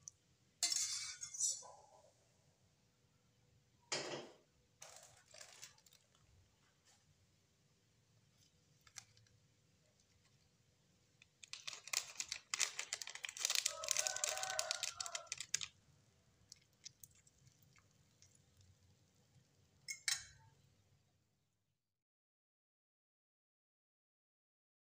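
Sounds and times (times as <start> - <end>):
plastic packaging crinkling and tearing: 4.8 - 6.3, 8.8 - 9.4, 11.2 - 15.8.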